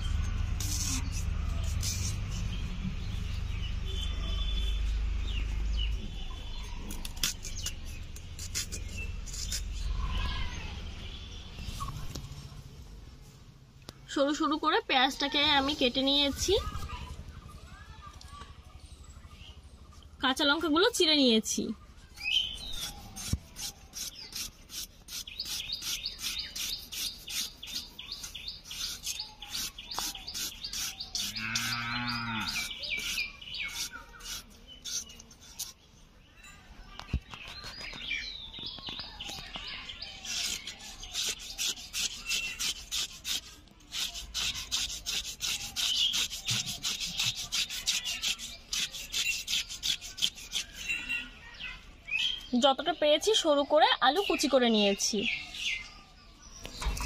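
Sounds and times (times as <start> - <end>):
birds chirping: 0.0 - 13.1, 13.8 - 57.0
cow mooing: 31.3 - 32.6.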